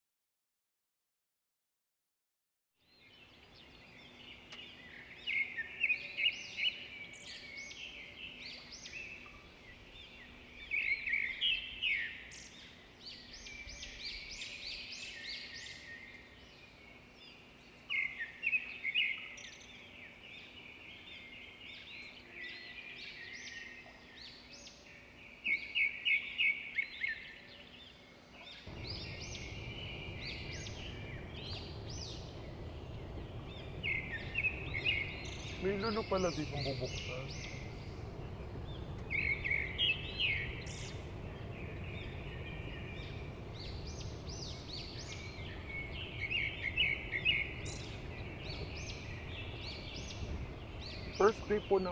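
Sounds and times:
small birds chirping: 0:02.8 - 0:51.9
faint steady hum: 0:03.1 - 0:51.9
low rushing noise: 0:28.7 - 0:51.9.

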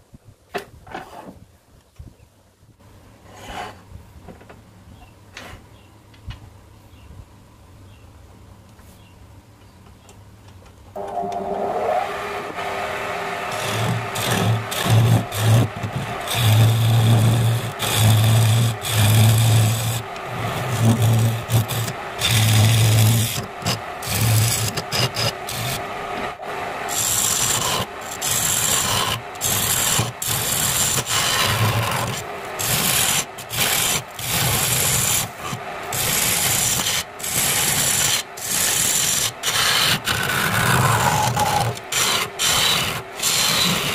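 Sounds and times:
chisel scraping spinning wood: 0:11.0 - 0:43.9
wood lathe running: 0:11.0 - 0:43.9.

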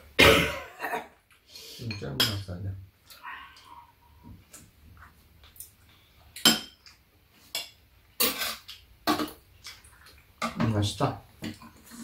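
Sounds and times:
spoons clinking on bowls: 0:01.8 - 0:02.4.

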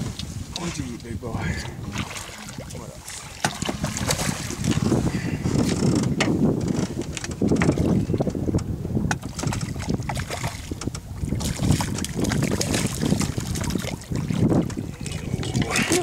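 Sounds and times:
water lapping against boat: 0:00.0 - 0:16.0
wind buffeting microphone: 0:00.0 - 0:16.0
short sharp splashes: 0:01.8 - 0:04.8.

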